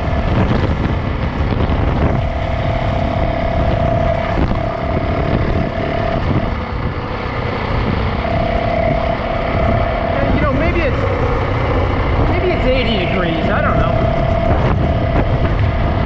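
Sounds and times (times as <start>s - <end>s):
dirt bike engine running: 0.0s - 16.0s
steady whine: 0.0s - 16.0s
wind rushing over microphone: 0.0s - 16.0s.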